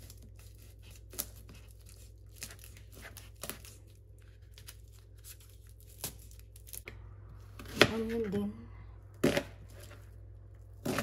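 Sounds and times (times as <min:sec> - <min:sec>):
garlic skins crackling: 0:00.0 - 0:06.9.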